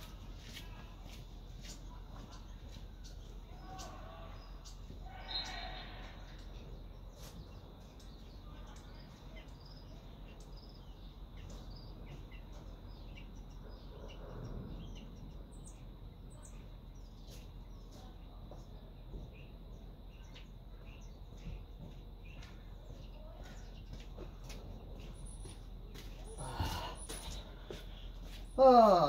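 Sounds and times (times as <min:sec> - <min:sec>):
small birds chirping: 0:00.0 - 0:29.0.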